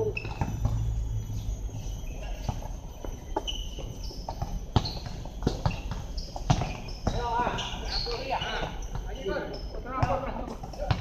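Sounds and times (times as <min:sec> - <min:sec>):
basketball bouncing on court: 0:03.4 - 0:09.2, 0:09.9 - 0:11.0.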